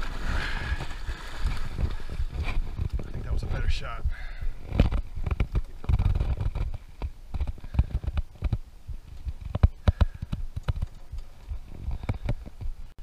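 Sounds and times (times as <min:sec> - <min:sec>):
irregular knocks and clicks: 0:04.6 - 0:12.8.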